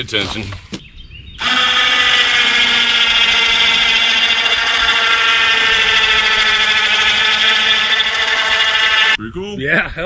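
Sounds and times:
chainsaw running at high revs: 0:01.4 - 0:09.2.

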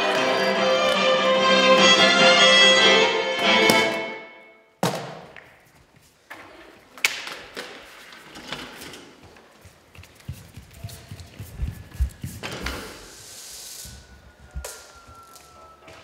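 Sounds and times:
violin music: 0:00.0 - 0:04.6
bare feet on wooden stage: 0:04.8 - 0:13.0.

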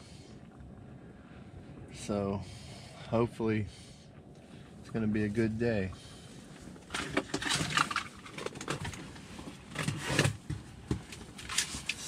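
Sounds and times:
rustling and light knocks: 0:06.9 - 0:12.0.

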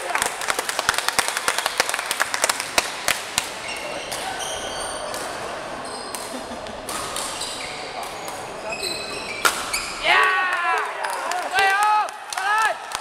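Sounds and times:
people clapping: 0:00.0 - 0:03.6, 0:10.1 - 0:13.0
shoes squeaking on court floor: 0:03.5 - 0:06.3, 0:06.9 - 0:10.0.

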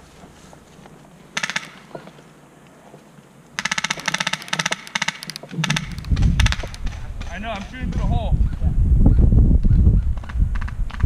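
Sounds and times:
airsoft gun firing full-auto: 0:03.6 - 0:07.0.

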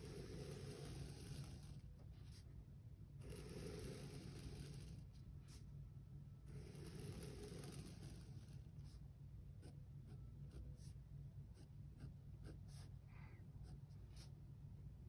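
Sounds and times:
pen scratching on paper: 0:00.0 - 0:02.5, 0:03.2 - 0:05.7, 0:06.5 - 0:09.0, 0:09.6 - 0:13.0, 0:13.6 - 0:14.4
steady low hum: 0:00.0 - 0:15.0.

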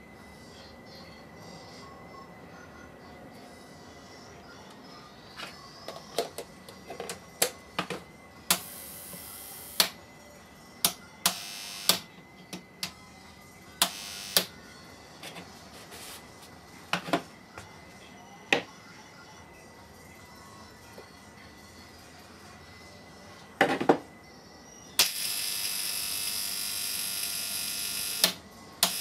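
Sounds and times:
buzzing electric arcs: 0:25.0 - 0:29.0.

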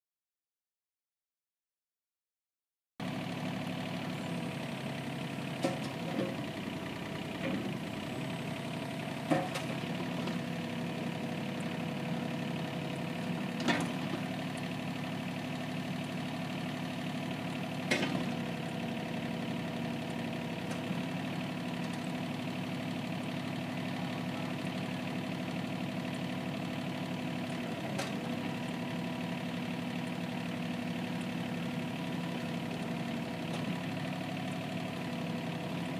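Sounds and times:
excavator engine idling: 0:03.0 - 0:35.9.

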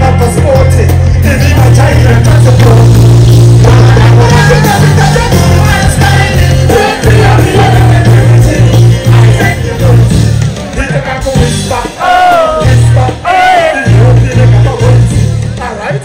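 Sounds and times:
heavy bass line: 0:00.0 - 0:15.8
drums: 0:00.0 - 0:16.0
live band music: 0:00.0 - 0:16.0
person singing: 0:03.6 - 0:10.2, 0:10.8 - 0:15.2.

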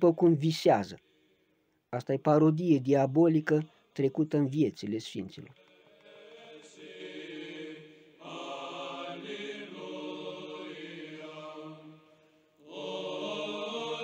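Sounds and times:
voices chanting long notes: 0:05.6 - 0:14.0.

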